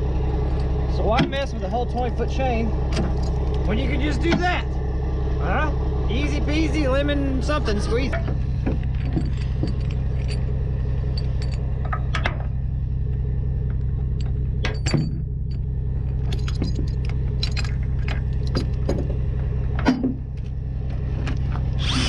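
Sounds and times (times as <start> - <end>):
steady low rumble: 0.0 - 22.0
chain links clinking: 8.5 - 12.2, 14.1 - 19.0.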